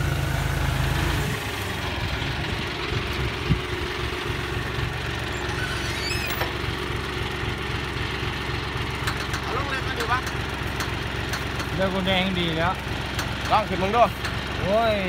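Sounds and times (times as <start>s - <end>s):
tractor diesel engine under load: 0.0s - 15.0s.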